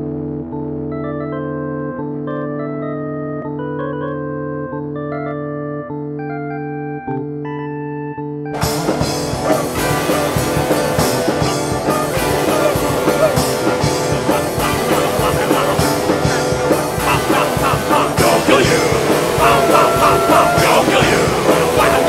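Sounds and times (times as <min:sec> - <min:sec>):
electric guitar: 0:00.0 - 0:22.0
held organ-like keyboard: 0:00.0 - 0:22.0
drums: 0:08.6 - 0:22.0
punk rock band playing: 0:08.6 - 0:22.0.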